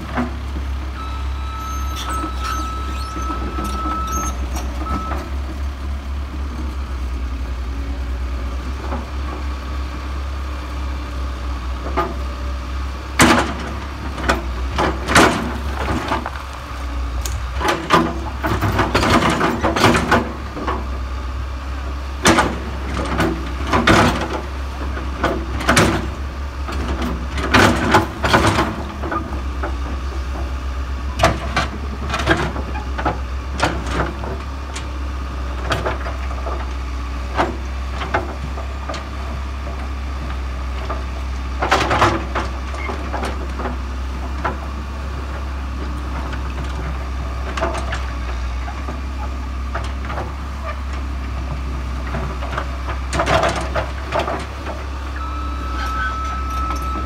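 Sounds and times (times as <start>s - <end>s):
excavator diesel engine droning: 0.0s - 57.0s
bucket scraping rocks and dirt: 14.4s - 16.9s.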